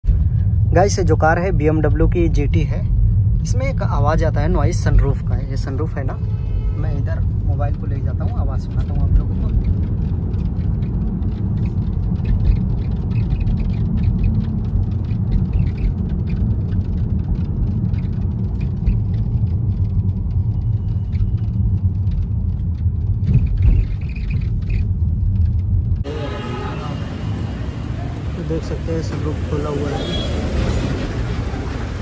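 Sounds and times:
low rumble of car: 0.0s - 32.0s
sunroof rattling and clicking: 7.2s - 26.0s.

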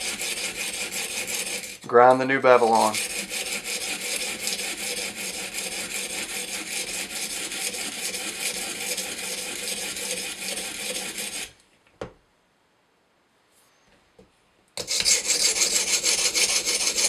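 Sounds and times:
stone grinding knife blade: 0.0s - 1.9s, 2.6s - 11.6s, 14.8s - 17.0s.

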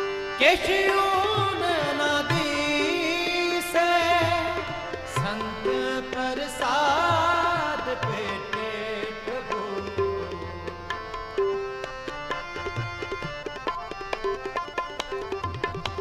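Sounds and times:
wavering vocal line: 0.0s - 11.7s
harmonium chords: 0.0s - 16.0s
tabla playing: 0.0s - 16.0s.

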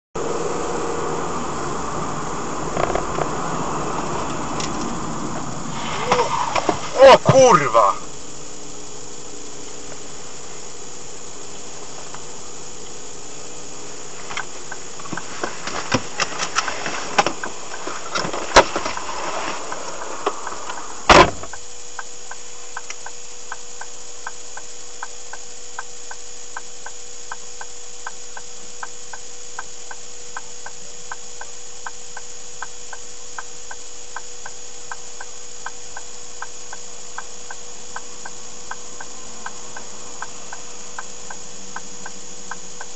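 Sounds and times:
car engine idling: 0.2s - 25.0s, 34.4s - 42.9s
car door shutting: 2.7s - 7.8s, 14.3s - 21.6s
knocks and rustles: 14.2s - 19.7s
indicator relay ticking: 21.5s - 42.9s.

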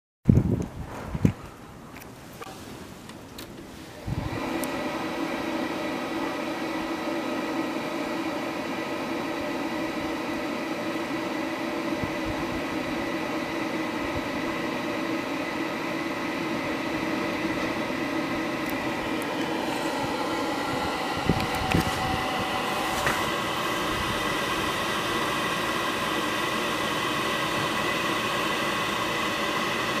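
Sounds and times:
hot-air blower whining: 3.9s - 30.0s.

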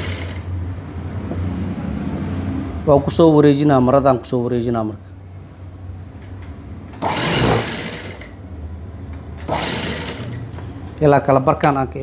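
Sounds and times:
sewing machine stitching: 0.0s - 0.5s, 7.0s - 8.4s, 9.4s - 10.4s.

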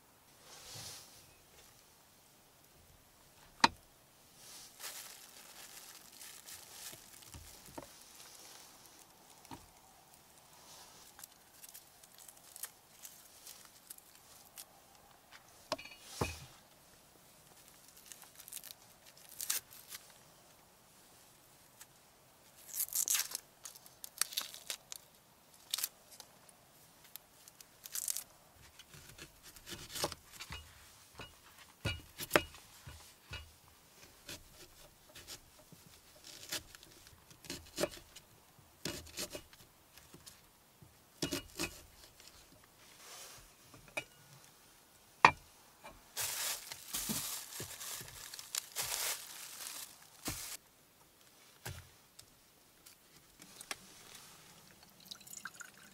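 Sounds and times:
onion skin crackling and tearing: 4.8s - 8.3s, 11.1s - 14.7s, 17.8s - 20.1s, 22.6s - 26.3s, 27.1s - 30.4s, 36.2s - 38.1s, 46.2s - 50.6s.

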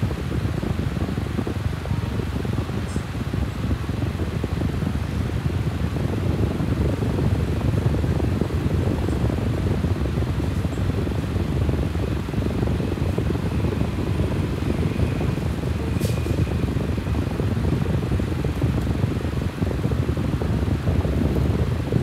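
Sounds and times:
fan low rumble: 0.0s - 22.0s.

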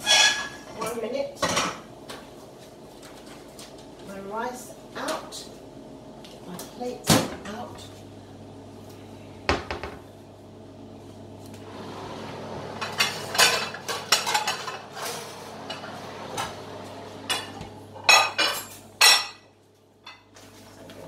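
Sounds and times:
pots and pans clattering: 0.0s - 0.8s, 12.8s - 16.6s, 17.3s - 19.5s
low steady hum: 0.0s - 21.0s.

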